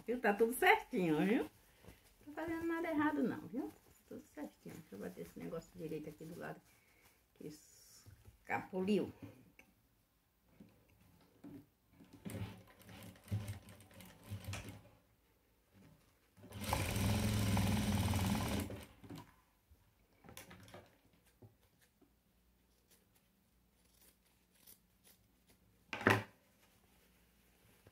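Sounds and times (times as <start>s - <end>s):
sewing machine stitching: 12.3s - 14.8s, 16.4s - 19.3s.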